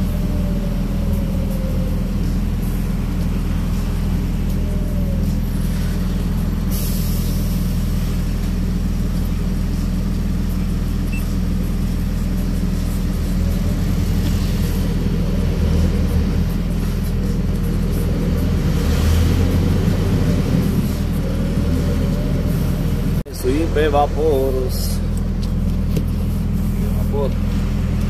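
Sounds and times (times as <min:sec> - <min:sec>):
diesel truck engine running: 0:00.0 - 0:28.0
air brakes hissing: 0:05.6 - 0:08.1.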